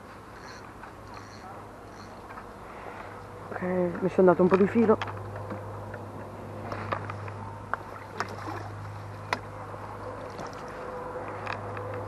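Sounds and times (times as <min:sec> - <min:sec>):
water splashing: 0:07.8 - 0:09.1, 0:10.2 - 0:10.8.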